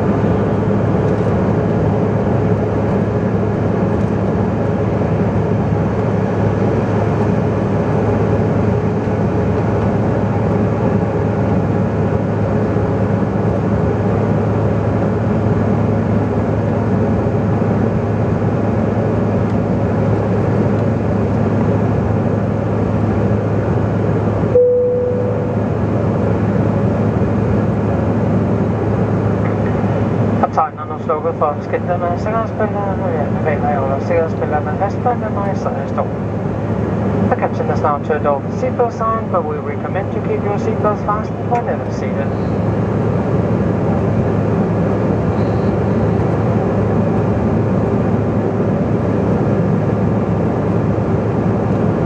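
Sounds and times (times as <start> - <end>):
air rushing along fuselage: 0.0 - 52.0
jet engine drone in cabin: 0.0 - 52.0
brief single tone: 24.5 - 25.6, 45.4 - 45.8.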